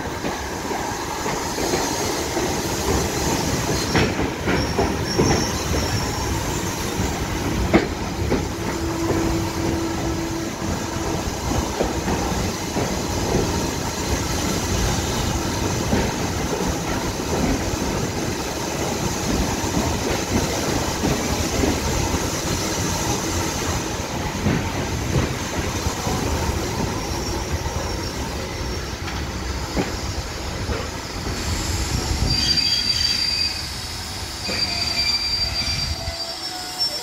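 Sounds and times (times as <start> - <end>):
train wheels rumbling on rails: 0.0 - 37.0
high wheel squeal: 3.4 - 7.1, 26.8 - 37.0.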